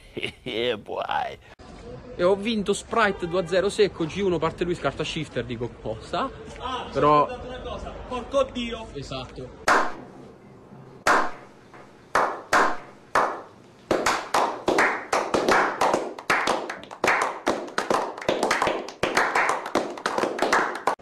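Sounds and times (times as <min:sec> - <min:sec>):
men clapping: 0:09.7 - 0:10.0, 0:11.1 - 0:11.4, 0:12.2 - 0:21.0.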